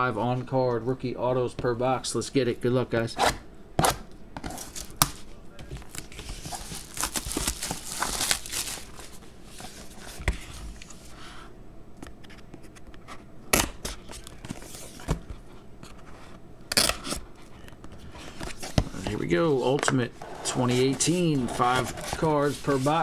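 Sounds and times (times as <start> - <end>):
plastic wrap crinkling and tearing: 4.6 - 5.0, 5.8 - 9.2.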